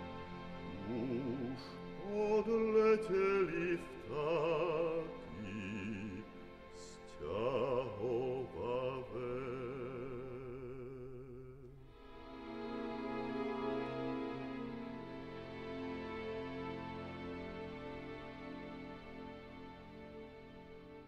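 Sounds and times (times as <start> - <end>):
sustained accompaniment: 0.0 - 21.0
person singing with vibrato: 0.7 - 11.9.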